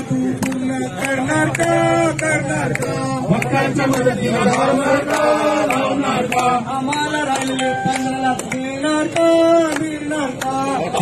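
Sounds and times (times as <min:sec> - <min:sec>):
group singing a hymn: 0:00.0 - 0:11.0.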